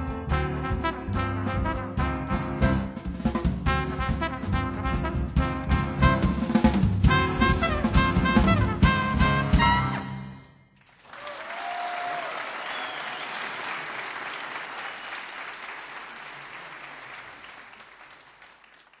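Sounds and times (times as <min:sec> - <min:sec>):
band music: 0:00.0 - 0:10.7
audience applauding: 0:10.8 - 0:19.0.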